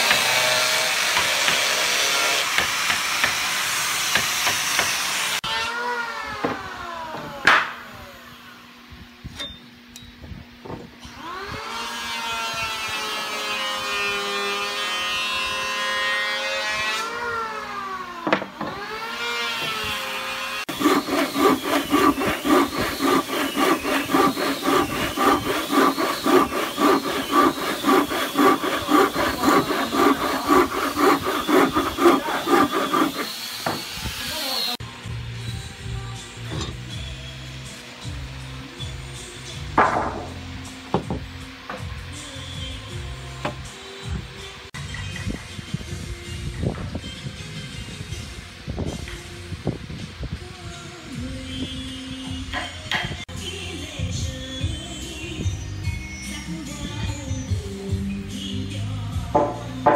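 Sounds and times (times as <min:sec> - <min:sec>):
hand saw cutting wood: 0:00.0 - 0:05.5, 0:18.7 - 0:34.8.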